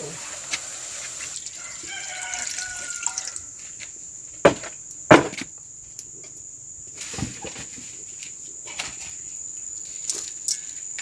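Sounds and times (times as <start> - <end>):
water pouring into a metal wok: 0.0 - 3.4
sharp knocks: 4.4 - 5.5.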